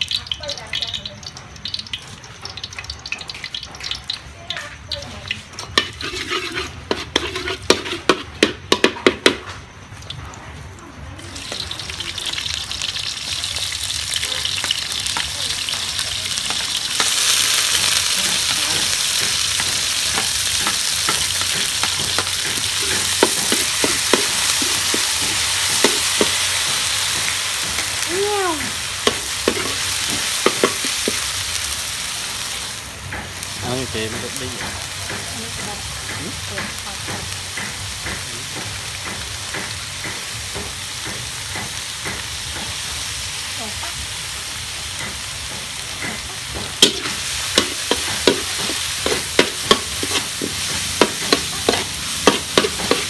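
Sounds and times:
oil sizzling: 0.0s - 53.0s
metal spatula scraping a wok: 5.3s - 9.4s, 12.2s - 28.0s, 28.8s - 31.8s, 45.8s - 53.0s.

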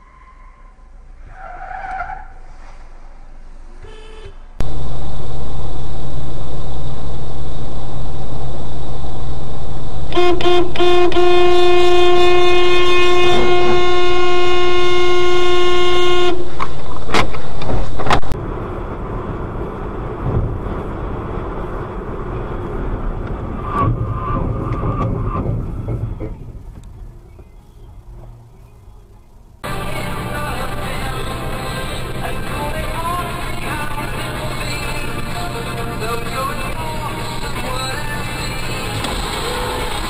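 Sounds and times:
road traffic noise: 0.0s - 40.0s
car horn: 3.8s - 4.6s, 10.1s - 16.5s.

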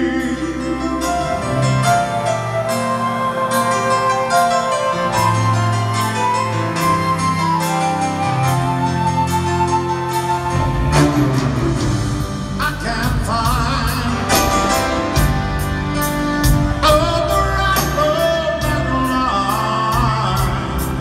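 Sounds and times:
man singing: 0.0s - 2.0s, 12.5s - 15.0s, 16.7s - 21.0s
live band with piano and drums: 0.0s - 21.0s.

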